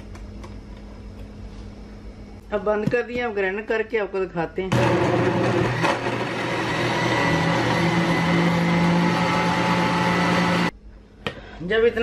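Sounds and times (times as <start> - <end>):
blender motor running: 4.7 - 10.7.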